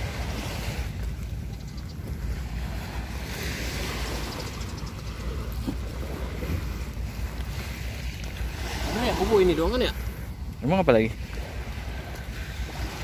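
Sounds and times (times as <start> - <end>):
small waves on shore: 0.0 - 13.0
wind rumbling on microphone: 0.0 - 13.0.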